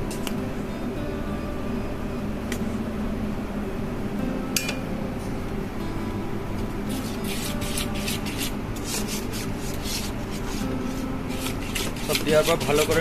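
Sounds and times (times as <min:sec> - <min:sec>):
steady low hum: 0:00.0 - 0:13.0
whisk scraping in a metal pan: 0:06.9 - 0:13.0.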